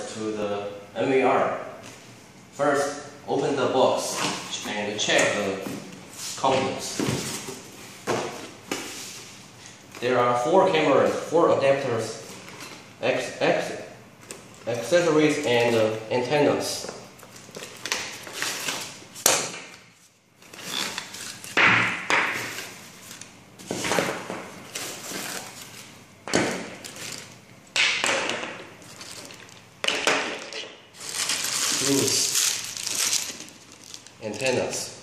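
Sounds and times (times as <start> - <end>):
plastic bags crinkling: 28.8 - 29.7, 31.0 - 34.6.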